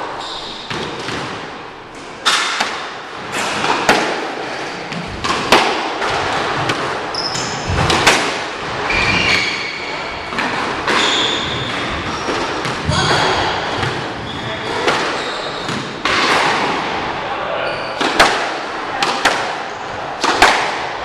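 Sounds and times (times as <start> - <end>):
squash ball hitting rackets and walls: 0.0 - 17.2, 17.8 - 21.0
shoes squeaking on hardwood floor: 7.0 - 7.9, 8.7 - 16.0.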